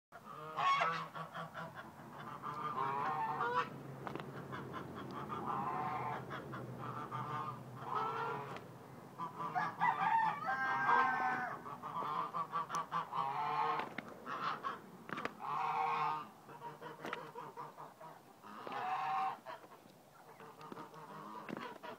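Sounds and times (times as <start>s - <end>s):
rooster squawking: 9.2s - 14.8s.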